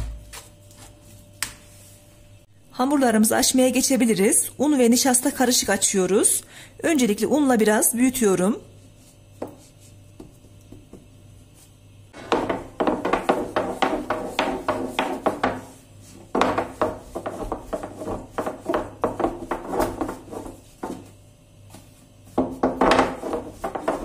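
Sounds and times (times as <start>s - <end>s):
rolling pin clattering on board: 12.2s - 21.2s, 22.3s - 24.0s.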